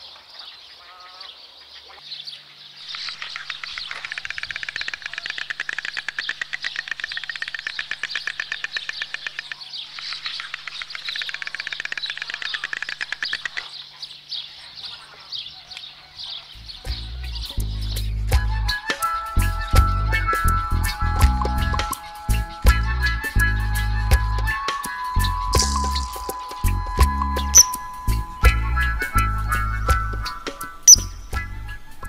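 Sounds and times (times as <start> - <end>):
storks clattering bills: 2.9 - 13.9.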